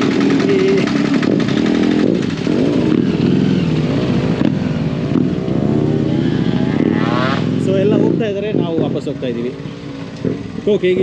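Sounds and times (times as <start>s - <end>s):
motorcycle engines revving: 0.0s - 11.0s.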